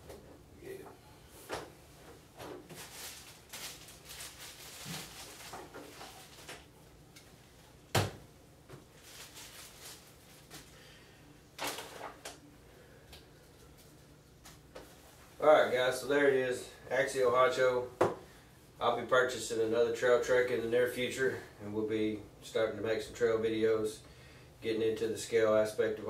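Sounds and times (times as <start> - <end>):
plastic bubble bag rustling: 2.2 - 6.7, 8.8 - 10.9
plastic packaging rustling: 2.4 - 6.7, 8.8 - 10.8, 11.6 - 12.2.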